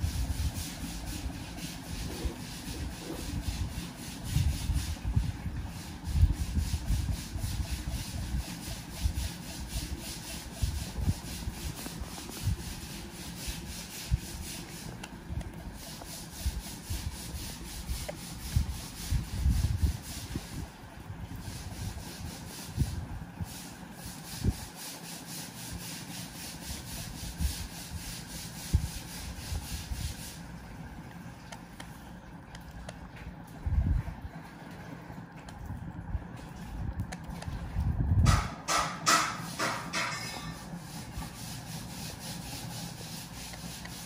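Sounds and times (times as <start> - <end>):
rubbing and dull bumps: 38.2 - 44.0.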